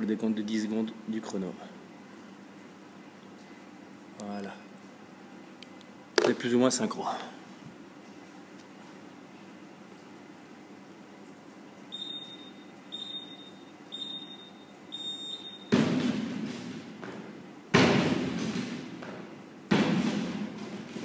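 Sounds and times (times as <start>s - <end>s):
short high timer beeps: 12.0s - 15.7s.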